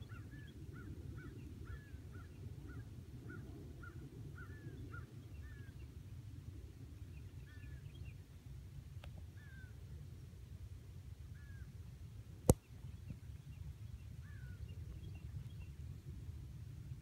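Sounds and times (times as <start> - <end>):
low wind rumble: 0.0 - 17.0.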